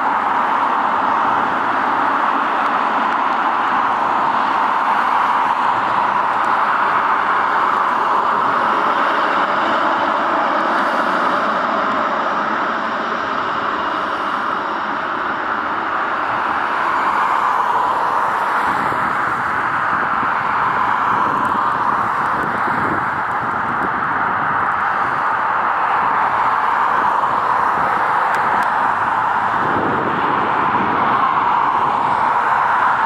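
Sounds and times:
jet engines rushing: 0:00.0 - 0:33.0.

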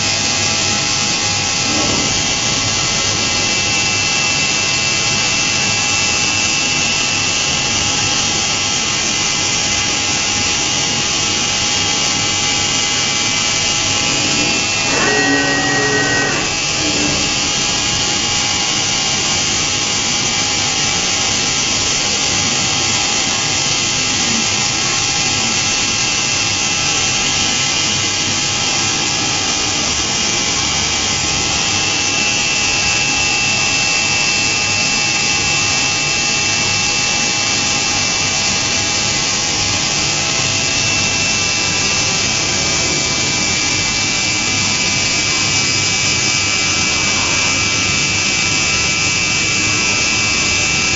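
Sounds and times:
high spindle whine: 0:00.0 - 0:50.9
hiss of metal cutting: 0:10.1 - 0:20.0, 0:38.4 - 0:50.9.

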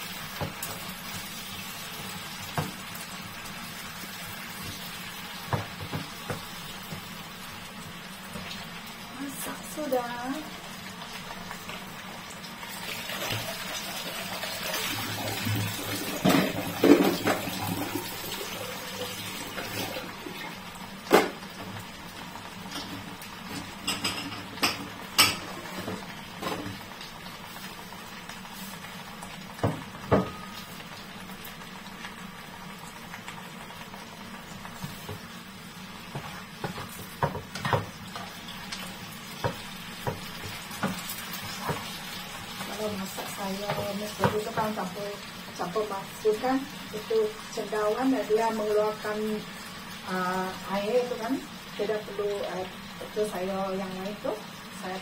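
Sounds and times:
cookware and dishes clinking: 0:23.6 - 0:26.7.

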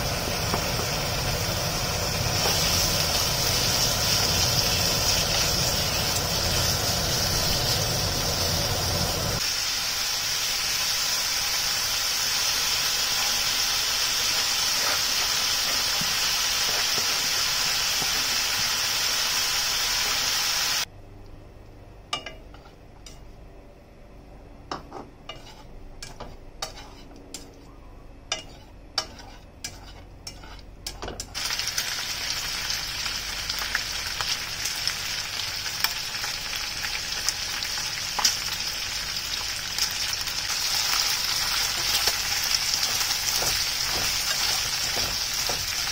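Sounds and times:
meat sizzling in a frying pan: 0:00.0 - 0:20.9, 0:31.4 - 0:45.9.

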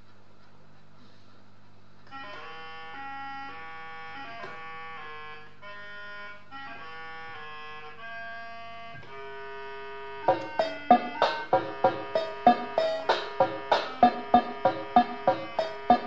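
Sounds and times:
melody of held notes: 0:10.2 - 0:16.0.

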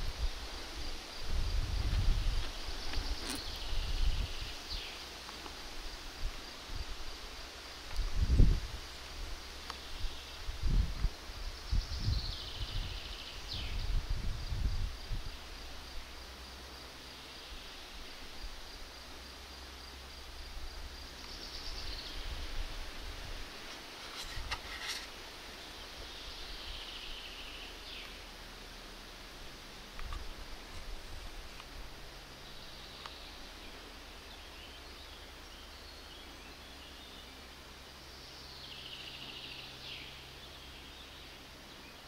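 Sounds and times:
wind rumble on microphone: 0:00.0 - 0:04.9, 0:07.9 - 0:16.1
faint high-pitched whine: 0:00.0 - 0:42.0.

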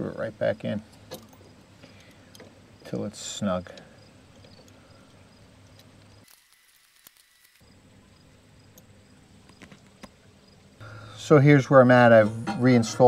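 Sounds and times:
faint outdoor hum: 0:00.0 - 0:13.0
small clicks: 0:03.7 - 0:07.6.

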